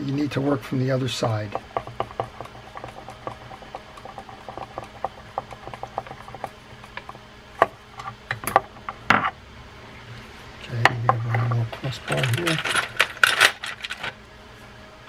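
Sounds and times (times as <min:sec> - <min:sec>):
sharp metal knocks: 0:01.5 - 0:07.1.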